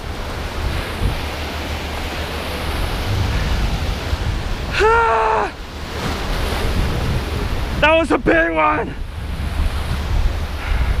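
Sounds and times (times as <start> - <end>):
ocean surf washing over rocks: 0.0 - 11.0
wind on microphone: 0.0 - 11.0
person shouting: 4.7 - 5.6.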